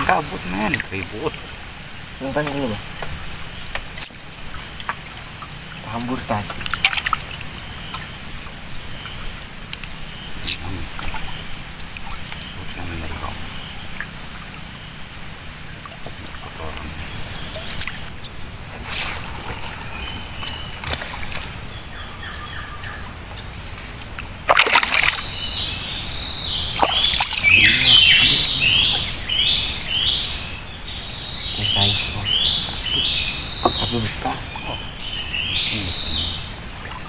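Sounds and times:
water splash: 3.8s - 8.2s, 9.7s - 14.6s, 18.8s - 21.7s, 24.2s - 25.6s, 26.7s - 29.4s
bird calling in downward notes: 25.0s - 37.0s.

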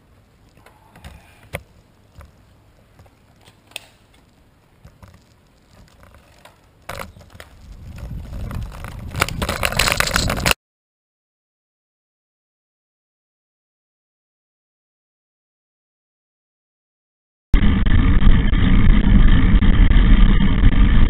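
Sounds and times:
wind and road noise: 0.0s - 10.6s.

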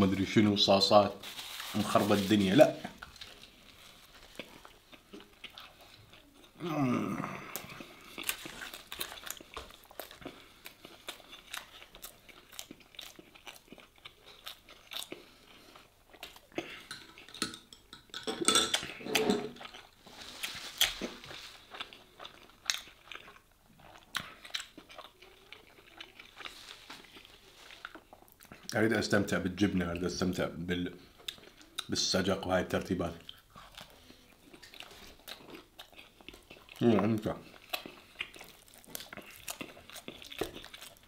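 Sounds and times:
crunchy bread chewing: 2.5s - 17.3s, 19.6s - 28.7s, 33.2s - 41.0s.

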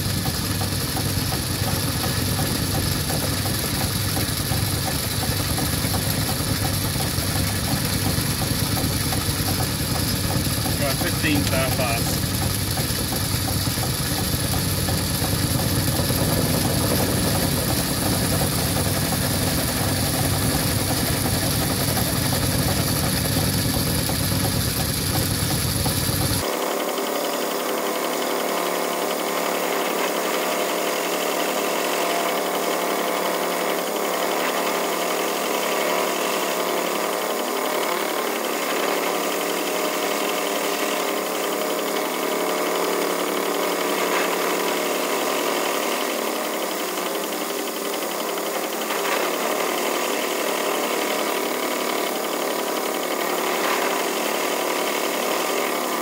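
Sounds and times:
metal lathe running: 0.0s - 56.0s.

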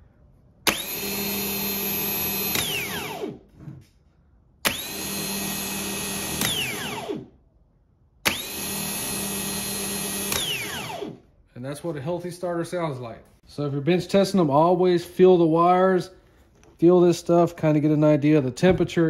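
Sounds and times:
starter motor whining: 0.6s - 3.5s, 4.6s - 7.3s, 8.2s - 11.2s.

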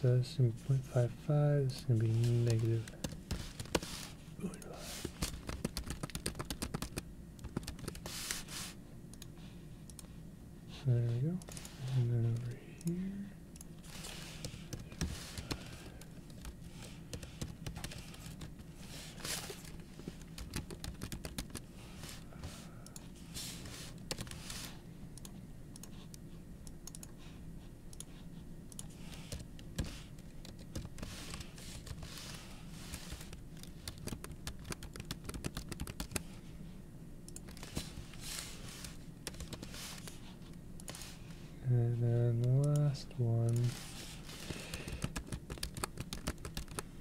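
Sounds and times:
steady low hum: 0.0s - 47.0s
computer keyboard typing: 2.1s - 4.0s, 4.6s - 8.2s, 13.9s - 18.6s, 19.4s - 21.7s, 24.0s - 24.6s, 26.8s - 27.1s, 28.0s - 36.3s, 38.8s - 40.2s, 44.4s - 46.9s.

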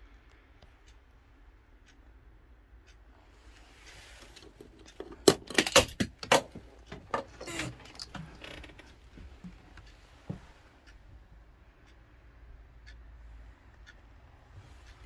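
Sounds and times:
sharp clicks and rattles: 4.3s - 10.0s.

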